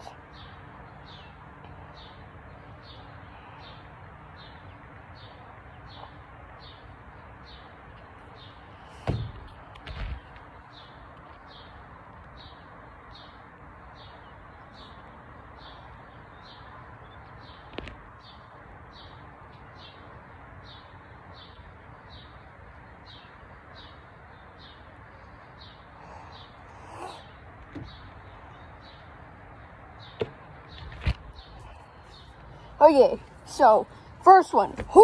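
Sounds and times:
bird chirping: 0.0s - 35.0s
steady background noise: 0.0s - 35.0s
thumps: 9.0s - 10.3s.

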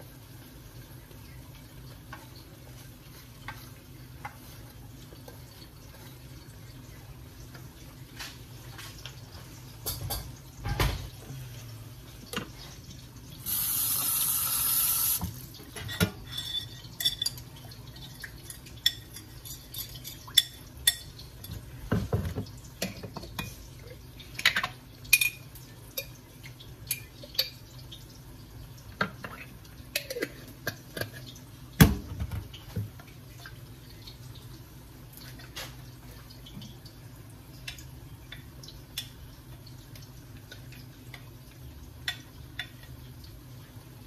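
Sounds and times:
kitchenware clinking and knocking: 9.8s - 11.1s.

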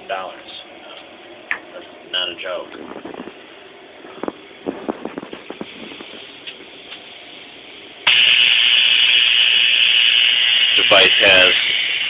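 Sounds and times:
electric buzzing hiss with crackle: 8.0s - 12.0s.

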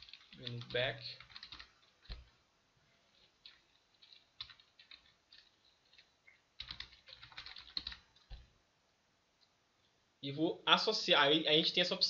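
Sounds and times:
faint keyboard typing: 0.0s - 8.6s.

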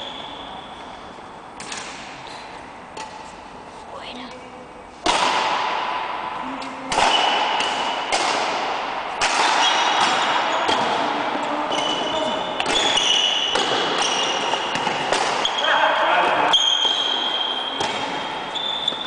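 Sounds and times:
shoes squeaking on floor: 0.0s - 1.0s, 9.6s - 10.9s, 11.5s - 19.0s
racket hitting shuttlecock: 1.6s - 3.4s, 5.0s - 19.0s.

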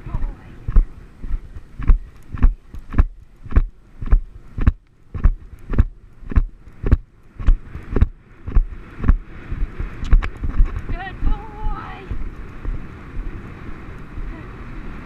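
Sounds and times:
horse hoofbeats cantering on grass: 0.1s - 12.8s.

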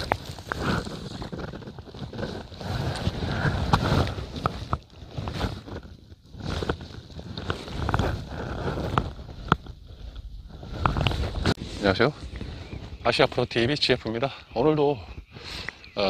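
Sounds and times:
fishing gear clicks and rustles: 0.0s - 11.6s
wind rumbling on microphone: 0.0s - 16.0s.

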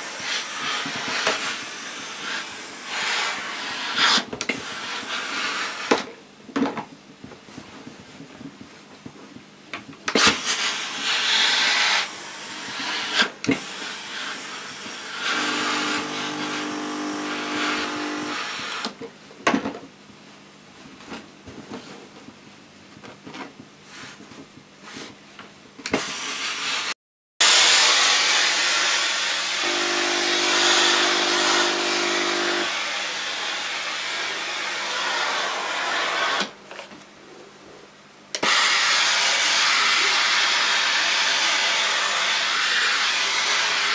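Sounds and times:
steam iron hissing: 0.0s - 6.0s, 10.1s - 18.9s, 25.9s - 36.6s, 38.4s - 43.9s
buzzing hum: 15.2s - 18.6s, 29.6s - 32.7s.

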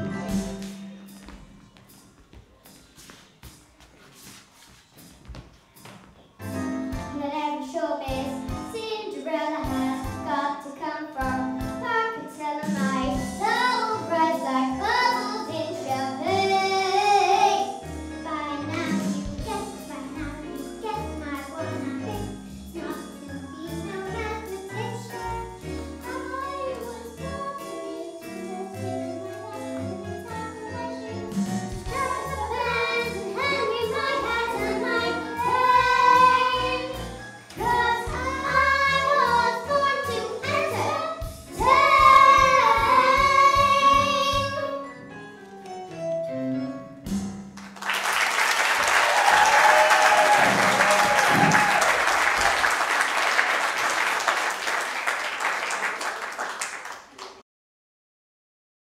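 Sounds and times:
backing track music: 0.0s - 47.9s
girls singing: 31.8s - 44.8s
audience applauding: 47.6s - 57.4s.

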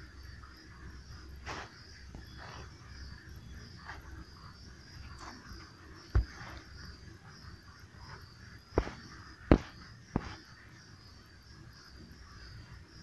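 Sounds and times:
insects chirping: 0.0s - 13.0s
sharp knocks: 6.1s - 6.6s, 8.8s - 10.4s.

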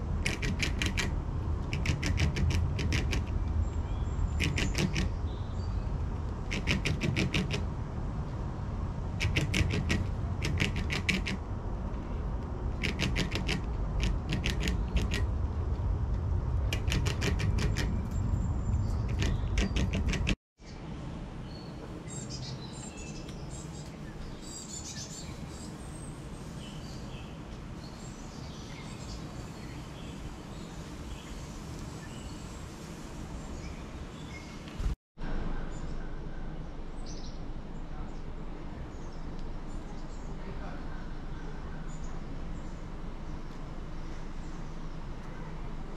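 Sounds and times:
squirrel gnawing corn: 0.1s - 3.5s, 4.2s - 5.2s, 6.4s - 7.7s, 9.1s - 11.4s, 12.7s - 15.4s, 16.6s - 18.2s, 19.0s - 20.4s
low rumble: 13.6s - 19.7s.

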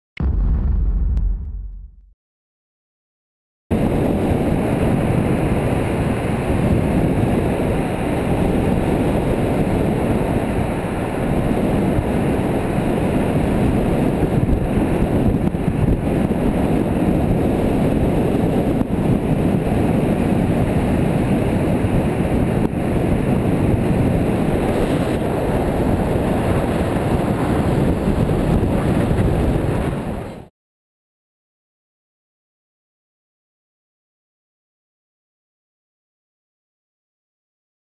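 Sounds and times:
wind rush on microphone: 3.7s - 30.5s.

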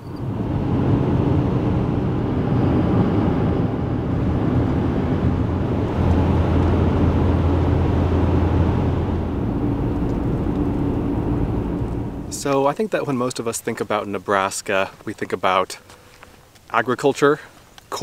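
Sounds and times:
low hum: 0.0s - 12.9s
tyre and wind road noise: 0.0s - 18.0s.

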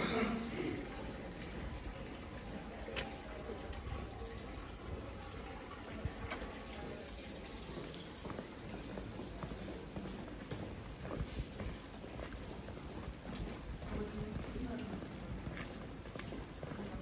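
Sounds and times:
steady rain falling: 0.0s - 17.0s
drips and sharp taps: 2.2s - 4.2s.

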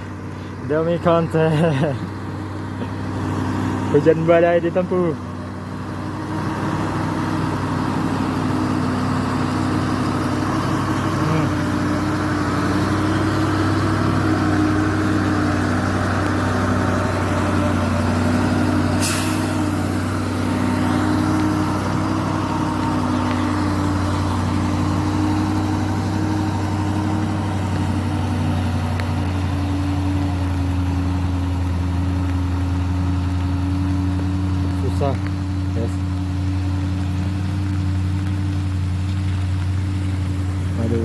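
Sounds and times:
truck diesel engine passing: 0.0s - 41.0s
brief hiss: 19.0s - 19.8s.

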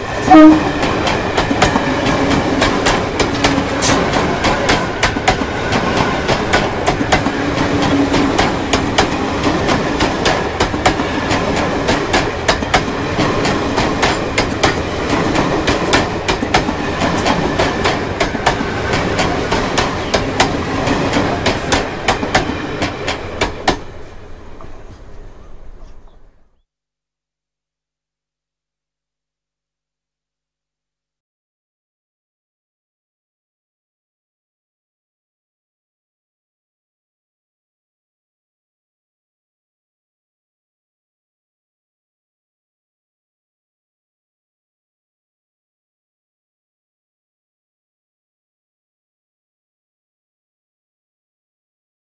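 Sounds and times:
train rumble: 0.0s - 26.5s
train wheels clacking over rail joints: 0.2s - 25.0s.

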